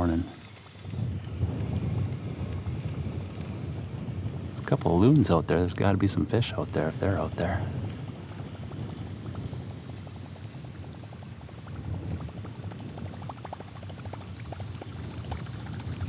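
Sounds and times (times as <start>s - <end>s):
bubbling gurgle of water: 10.5s - 16.0s.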